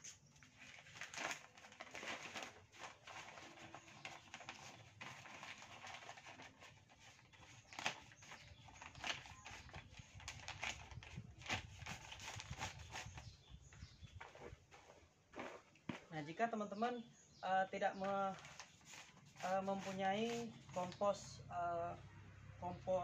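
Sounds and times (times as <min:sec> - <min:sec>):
plastic bag rustling and crinkling: 0:00.0 - 0:13.4, 0:14.2 - 0:16.1, 0:18.0 - 0:21.0.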